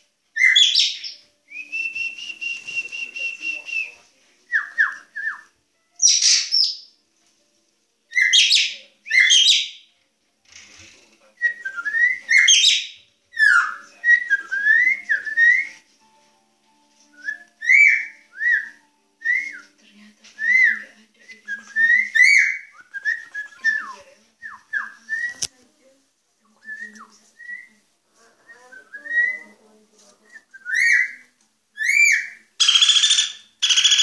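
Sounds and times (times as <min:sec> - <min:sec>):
bird singing whistled notes: 0:00.4 - 0:06.9, 0:08.1 - 0:09.9, 0:11.4 - 0:15.9, 0:17.1 - 0:19.8, 0:20.4 - 0:25.5, 0:26.6 - 0:27.8, 0:28.6 - 0:29.6, 0:30.4 - 0:34.0.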